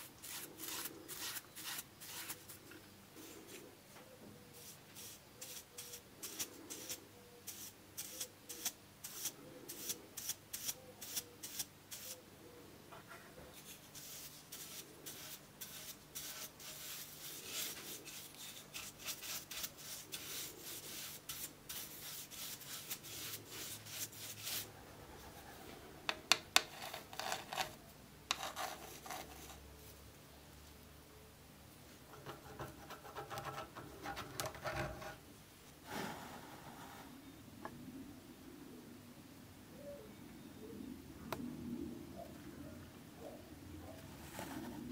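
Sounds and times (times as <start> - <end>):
paintbrush scrubbing wood: 0.0 - 2.4, 13.6 - 24.7.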